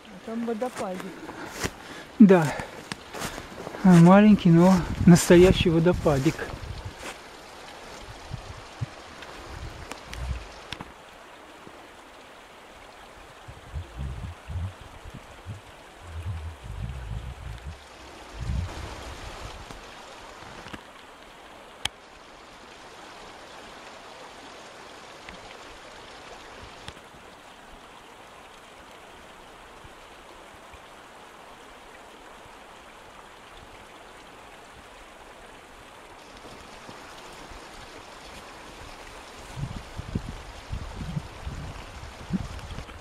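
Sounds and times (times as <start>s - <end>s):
waterfall splashing trickle: 0.0s - 43.0s
dull low thumps: 6.0s - 7.0s, 8.1s - 10.5s, 13.4s - 19.8s, 39.5s - 42.9s.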